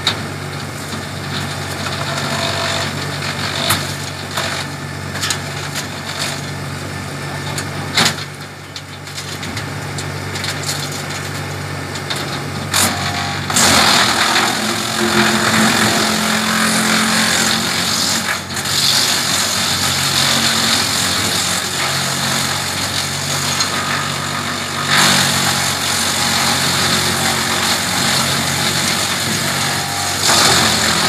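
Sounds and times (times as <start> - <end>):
tractor engine drone: 0.0 - 31.0
wood chipper chewing branches: 0.0 - 31.0.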